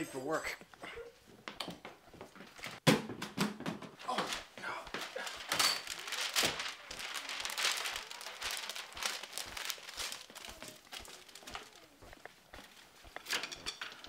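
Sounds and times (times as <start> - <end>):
wrapping paper crinkling: 4.0 - 14.0.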